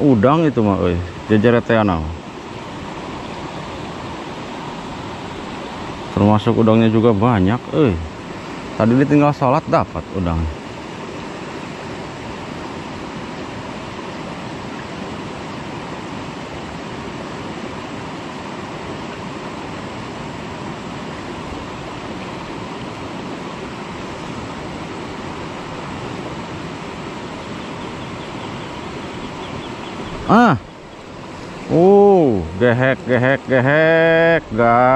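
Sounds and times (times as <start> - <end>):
river water rushing: 0.0 - 34.9.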